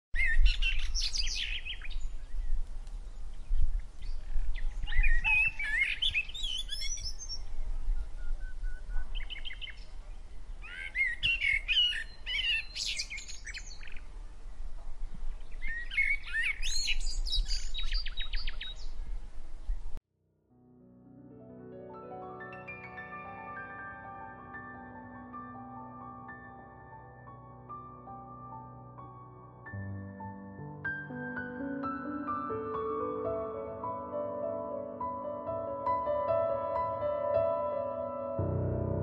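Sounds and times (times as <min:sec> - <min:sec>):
songbirds warbling and trilling: 0:00.2 - 0:20.0.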